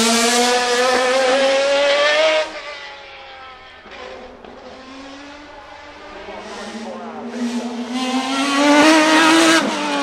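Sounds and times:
racing engine at high revs: 0:00.0 - 0:10.0.

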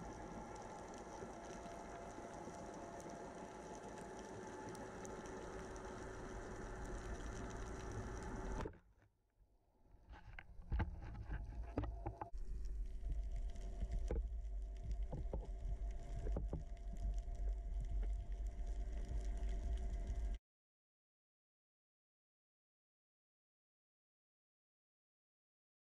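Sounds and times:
low underwater rumble: 0:00.0 - 0:08.8, 0:10.1 - 0:20.4.

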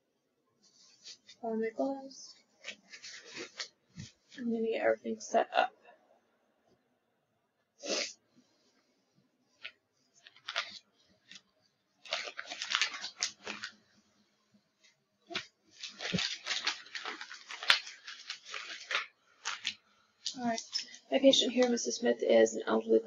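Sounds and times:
packaging crinkling and tearing: 0:09.6 - 0:11.4, 0:12.0 - 0:13.8, 0:15.3 - 0:20.9
packaging rustling: 0:09.6 - 0:13.8, 0:15.3 - 0:21.0.

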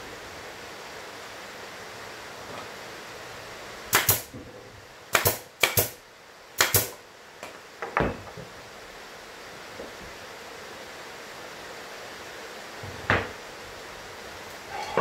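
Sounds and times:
nail gun firing: 0:03.9 - 0:04.3, 0:05.1 - 0:06.0, 0:06.6 - 0:07.0.

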